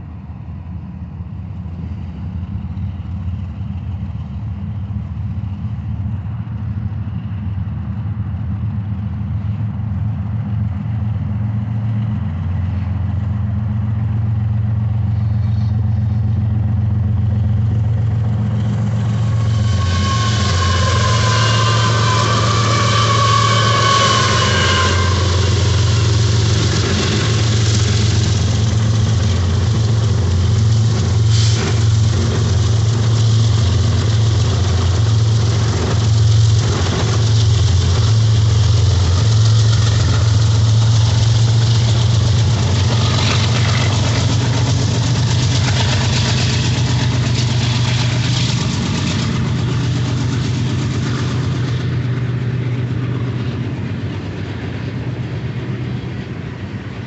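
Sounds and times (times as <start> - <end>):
diesel locomotive engine drone: 0.0 - 57.0
train wheels clanking: 11.9 - 57.0.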